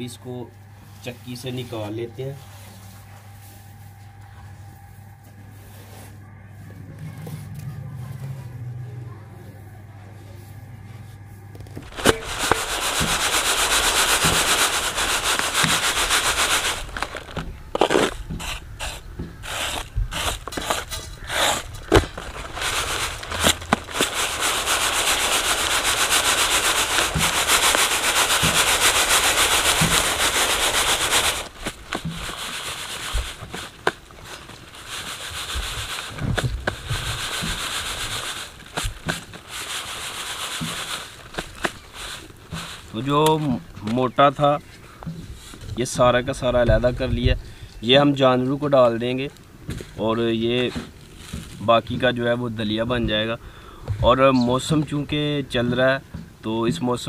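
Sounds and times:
grain rustling in a basket: 11.8 - 44.6, 48.0 - 52.9.

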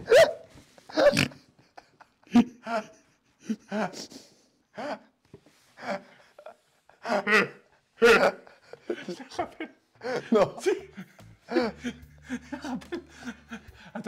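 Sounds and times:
men laughing: 0.0 - 4.1, 5.8 - 14.0.

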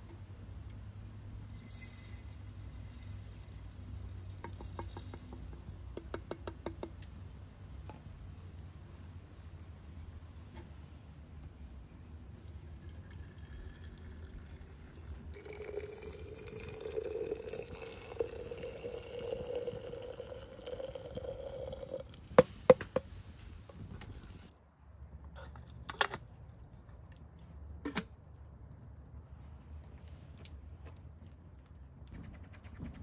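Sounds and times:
water pouring into a kettle: 12.4 - 22.2.

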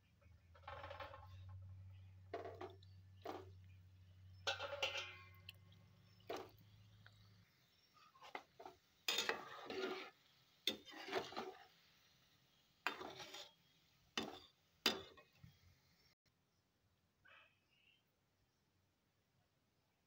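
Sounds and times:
metal spoon scraping a pan: 0.6 - 3.6, 4.3 - 12.1, 12.8 - 15.4
oil sizzling: 2.2 - 16.2.

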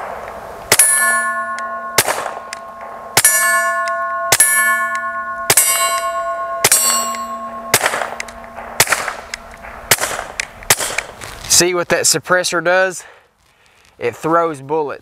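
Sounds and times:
bullet ringing steel plate: 0.7 - 11.0
suppressed pistol shots: 2.0 - 3.3, 7.7 - 11.2.

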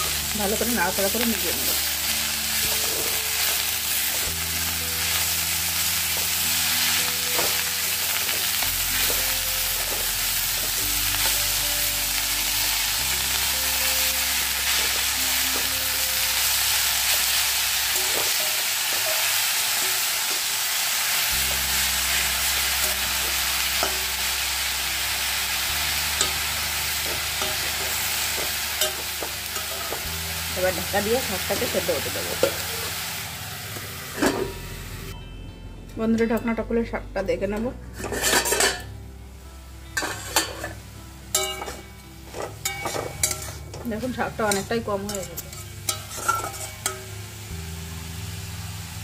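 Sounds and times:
vegetables sizzling in oil: 0.0 - 35.2, 37.9 - 49.0
metal spatula scraping a pan: 37.9 - 38.9, 40.0 - 43.8, 44.5 - 47.1.

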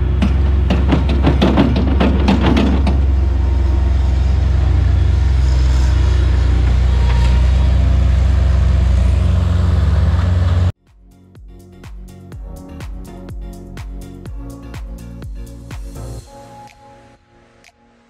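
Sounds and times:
diesel engine running: 0.0 - 10.8
dirt and rocks clattering into dumpster: 0.1 - 3.1.

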